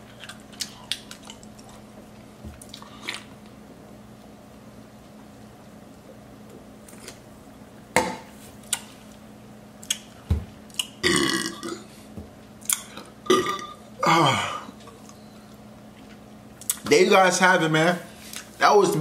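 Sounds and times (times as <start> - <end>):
man belching: 11.0 - 11.8, 13.3 - 14.7.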